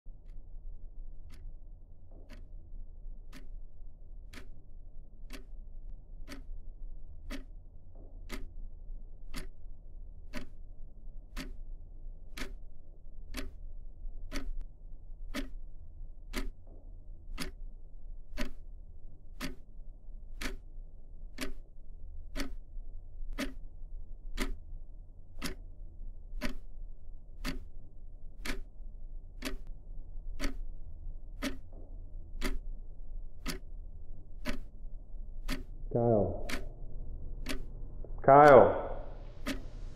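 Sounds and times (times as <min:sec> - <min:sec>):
low steady hum: 0:00.1 - 0:39.9
wall clock ticking: 0:00.2 - 0:39.9.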